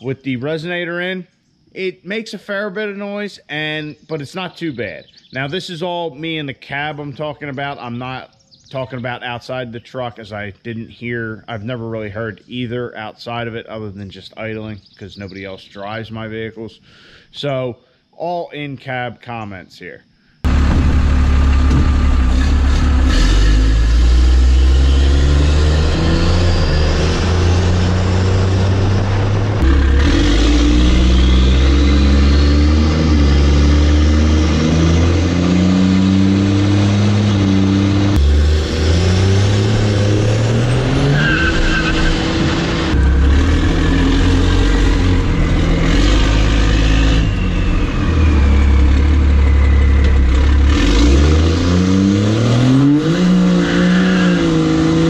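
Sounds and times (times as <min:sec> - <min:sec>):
diesel pickup accelerating: 0:20.4 - 0:55.0
rising whistle: 0:23.5 - 0:36.2, 0:38.1 - 0:51.4.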